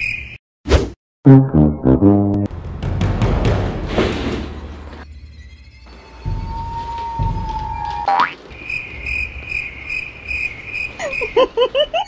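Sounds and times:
buzzy comedy horn notes: 1.3 - 2.5.

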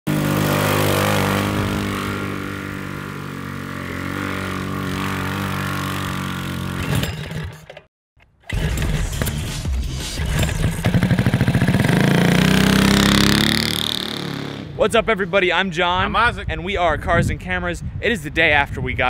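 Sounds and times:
go kart engine running: 0.1 - 7.8, 8.5 - 9.4, 10.2 - 14.6.

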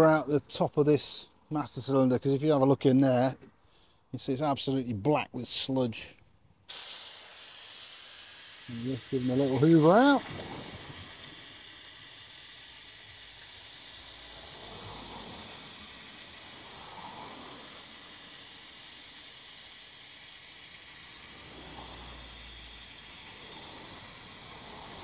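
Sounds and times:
small vacuum cleaner running: 6.7 - 25.0.

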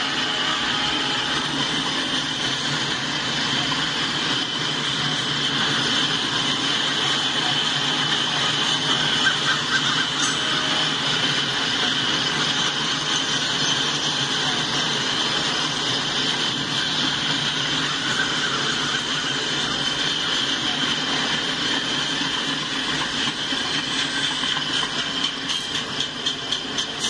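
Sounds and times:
high wheel squeal: 0.0 - 4.0, 5.5 - 14.3, 15.1 - 20.3
steel wheels rolling on rail: 0.0 - 27.0
wheels clicking over rail joints: 22.4 - 27.0.

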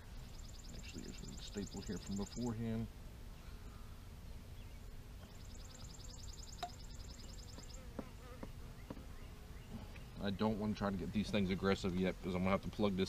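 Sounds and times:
honeybee colony humming: 0.0 - 13.0.

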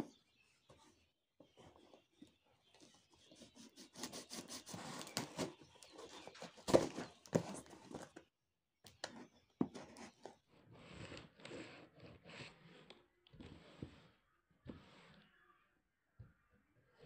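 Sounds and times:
knife scraping packing tape: 3.4 - 7.6.

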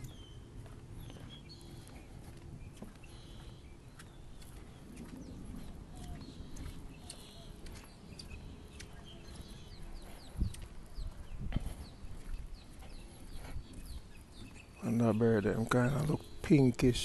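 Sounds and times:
bird calls and chirps: 0.0 - 17.0
footsteps on wooden boardwalk: 0.0 - 17.0
wind rumbling on microphone: 0.0 - 17.0.

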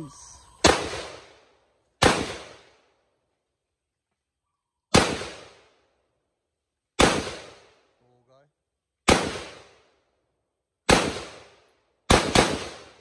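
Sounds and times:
rifle shots: 0.6 - 1.4, 2.0 - 2.8, 4.9 - 5.8, 7.0 - 7.8, 9.0 - 9.9, 10.8 - 13.0.

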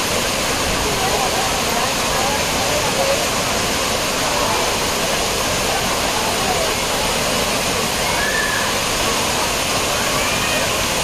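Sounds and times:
waterfall rushing onto rocks: 0.0 - 11.0.

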